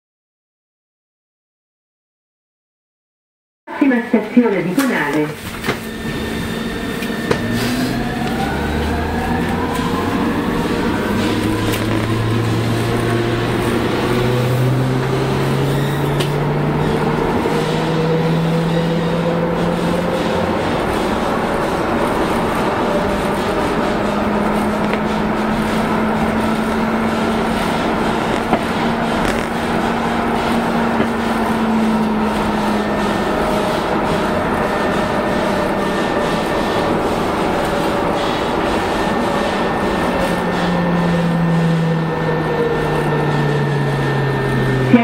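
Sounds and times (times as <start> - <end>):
train motor humming: 4.1 - 45.0
train wheels rumbling on rail: 4.8 - 45.0.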